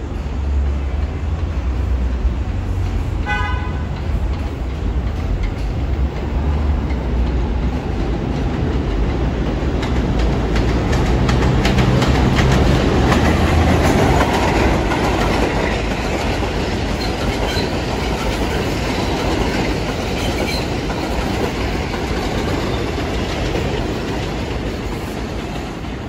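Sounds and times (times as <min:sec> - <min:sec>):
subway train rumbling: 0:00.0 - 0:26.0
train horn toot: 0:03.2 - 0:04.0.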